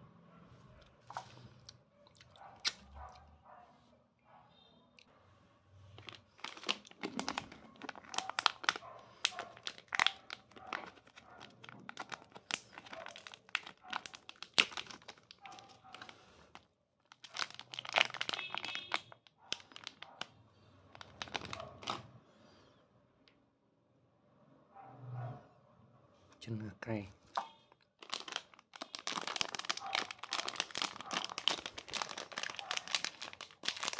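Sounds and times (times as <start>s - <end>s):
snack packet crinkling and tearing: 1.1s - 2.9s, 6.0s - 20.3s, 20.9s - 22.0s, 27.7s - 33.9s.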